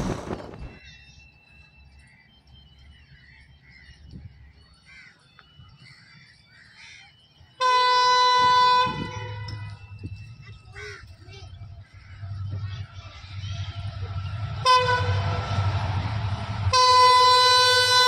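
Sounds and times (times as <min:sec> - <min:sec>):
faint chirps: 0:00.6 - 0:07.6
train horn blast: 0:07.6 - 0:09.7, 0:14.2 - 0:18.0.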